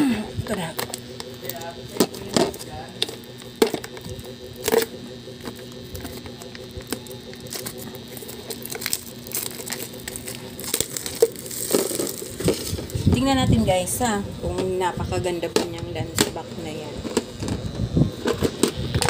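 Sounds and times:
faint steady hum: 0.0 - 19.0
plastic wrapping crinkling: 0.5 - 13.2
sharp crackles and clicks: 0.5 - 14.0.

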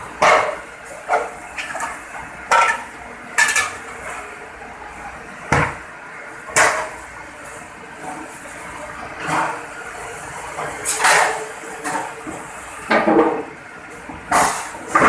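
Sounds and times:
kitchen machinery hum: 0.0 - 15.0.

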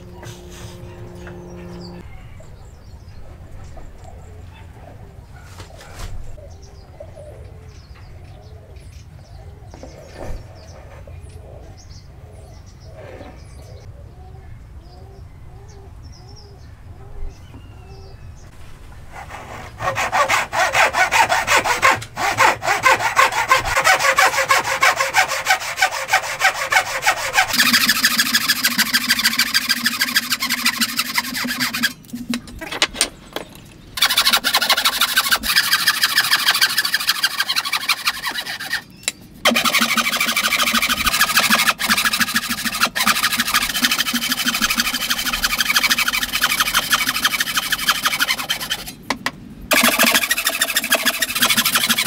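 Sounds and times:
hand saw cutting wood: 0.0 - 2.0, 19.1 - 32.8, 34.0 - 52.0
birds calling: 0.0 - 18.6, 19.3 - 52.0.

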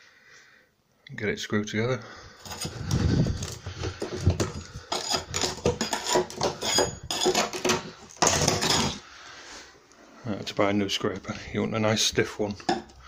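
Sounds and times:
steel scraper scraping floorboards: 2.4 - 9.0.

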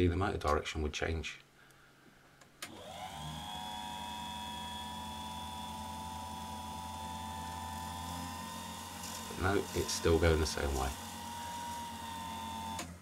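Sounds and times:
small electric motor humming: 2.7 - 13.0.

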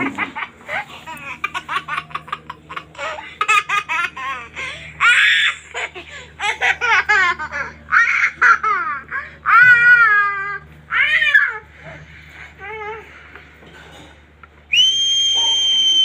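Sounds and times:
high-pitched giggling laughter: 0.0 - 12.1.

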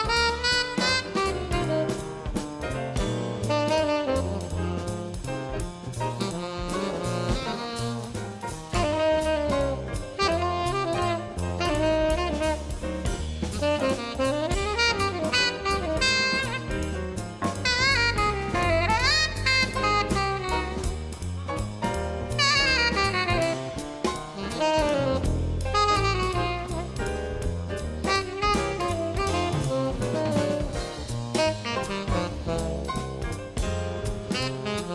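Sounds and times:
bass line: 0.0 - 34.9
piano: 0.0 - 34.9
tenor saxophone jazz melody: 0.0 - 34.9.

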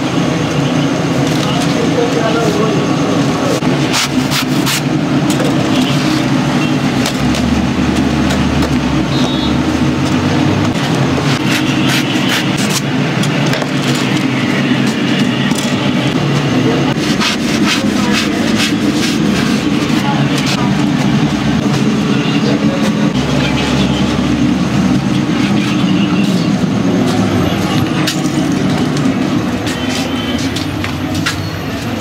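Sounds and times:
loud steady hum: 0.0 - 32.0.

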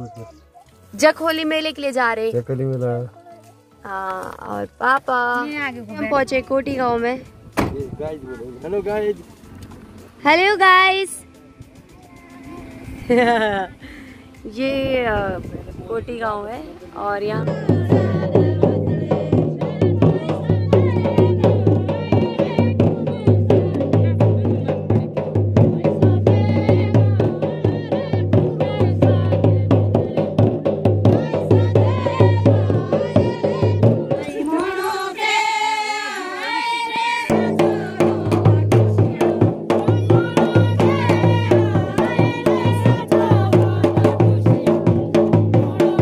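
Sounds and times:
women singing folk song: 14.4 - 46.0
steady drum beat: 17.0 - 35.3, 37.3 - 46.0.

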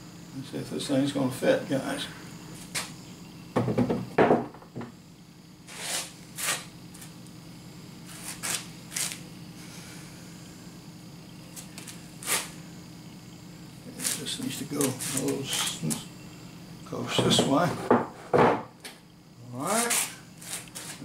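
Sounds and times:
wooden benchtop knocks and thumps: 3.6 - 4.9, 17.1 - 18.7.

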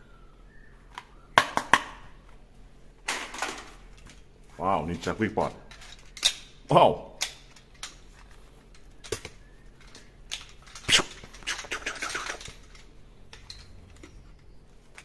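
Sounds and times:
plastic toys clacking: 5.6 - 6.5, 7.2 - 14.2.

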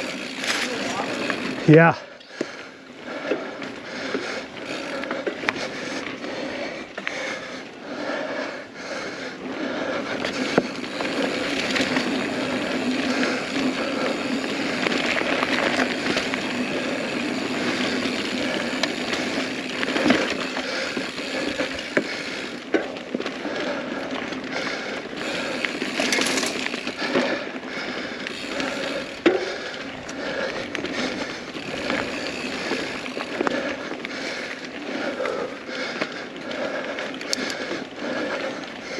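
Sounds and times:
tyres rolling over dirt: 0.0 - 2.0, 9.4 - 38.9
bike chain rattling: 0.0 - 38.9
rear hub ratcheting: 10.2 - 23.0, 28.0 - 33.7.

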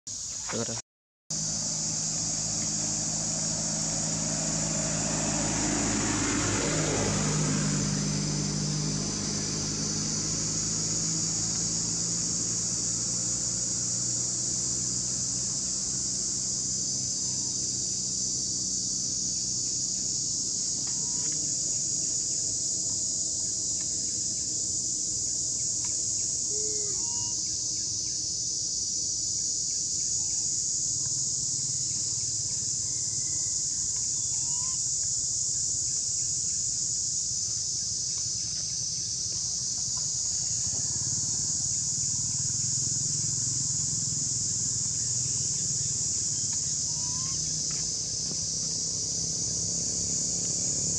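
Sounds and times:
insect chorus drone: 0.1 - 50.9
short chirping calls: 25.8 - 27.6, 45.1 - 47.6.

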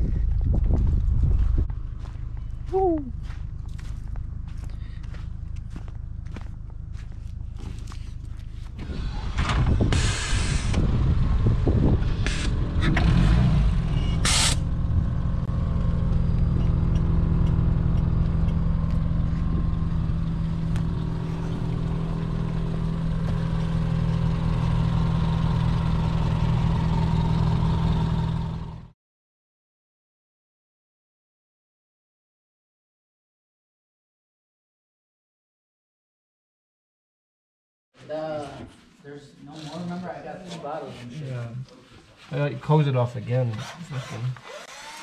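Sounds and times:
car engine exhaust burble: 0.0 - 28.9.

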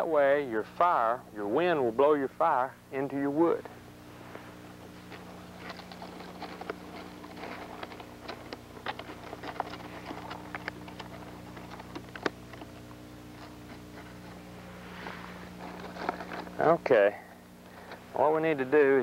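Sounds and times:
kindling crackling as it burns: 3.6 - 18.4.

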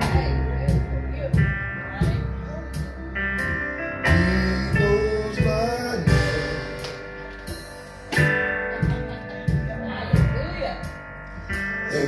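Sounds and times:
band with guitar: 0.0 - 12.0
man singing lead: 4.0 - 6.8
sharp drum hits: 4.8 - 10.7.

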